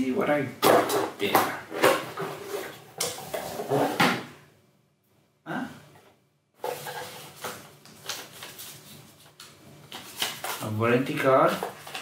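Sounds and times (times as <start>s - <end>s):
papers rustling: 6.6s - 12.0s.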